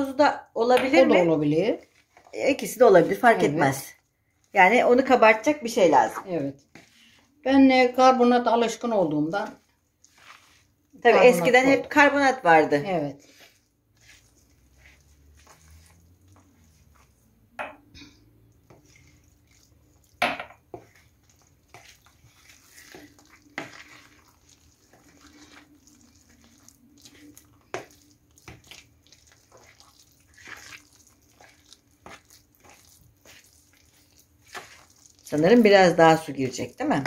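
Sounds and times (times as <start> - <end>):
wet batter being mixed: 0.0 - 37.0
spoon scraping plastic bowl: 6.0 - 7.3, 9.4 - 17.3, 18.0 - 37.0.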